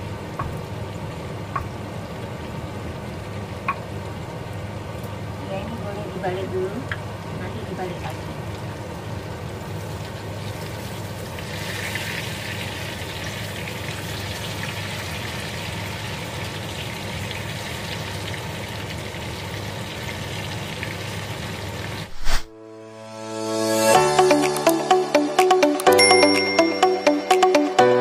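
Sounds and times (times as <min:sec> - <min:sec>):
food sizzling in hot oil: 0:08.0 - 0:22.4.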